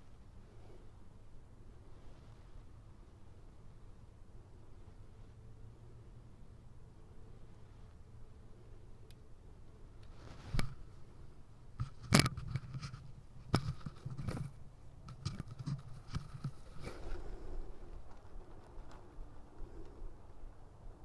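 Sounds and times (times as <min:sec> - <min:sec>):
faint low hum: 0:00.0 - 0:21.0
short rustles: 0:10.1 - 0:11.0.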